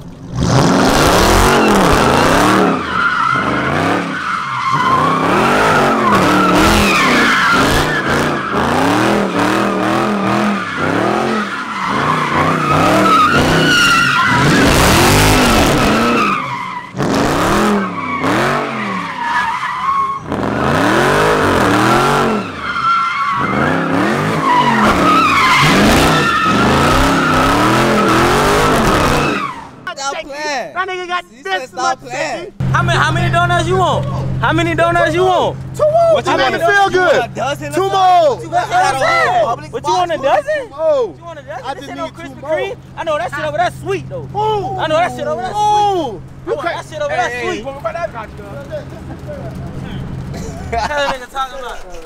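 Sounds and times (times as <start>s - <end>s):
car engine revving: 0.0s - 29.9s, 32.5s - 51.0s
tires squealing: 0.0s - 30.2s, 31.8s - 52.0s.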